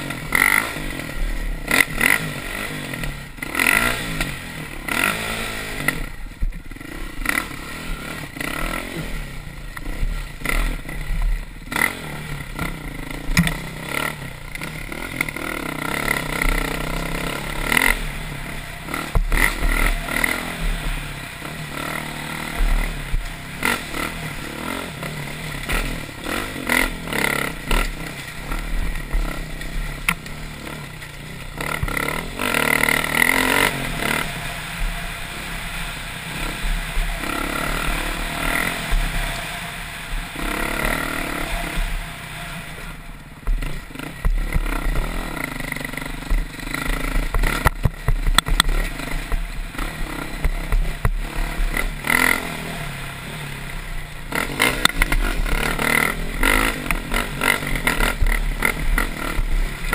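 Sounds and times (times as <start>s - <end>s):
dirt bike engine revving: 0.0s - 59.9s
rocks knocking against bike: 43.4s - 45.2s, 46.3s - 49.5s.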